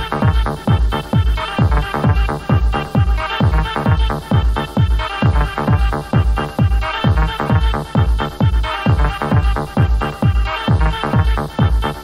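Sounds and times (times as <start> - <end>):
four-on-the-floor kick drum: 0.0 - 12.0.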